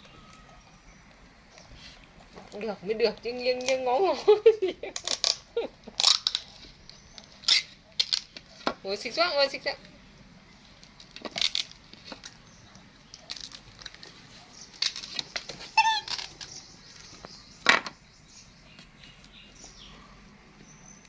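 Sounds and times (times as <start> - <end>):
high squeak: 15.7 - 16.5.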